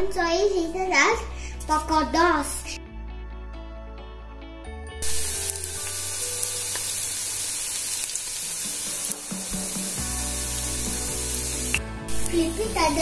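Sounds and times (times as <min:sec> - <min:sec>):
background music: 0:00.0 - 0:13.0
dough deep-frying in oil: 0:05.0 - 0:12.4.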